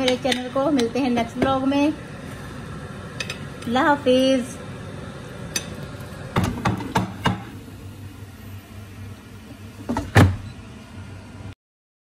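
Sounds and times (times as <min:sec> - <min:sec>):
utensil knocking on plate: 0:06.4 - 0:07.5.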